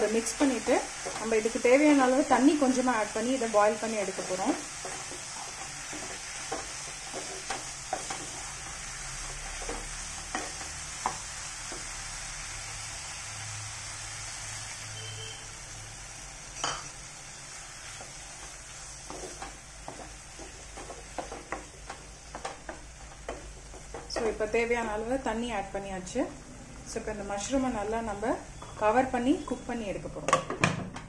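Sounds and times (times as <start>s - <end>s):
mushrooms sizzling in a pan: 0.0s - 30.0s
wooden spatula scraping a pan: 4.0s - 11.9s, 17.8s - 24.4s.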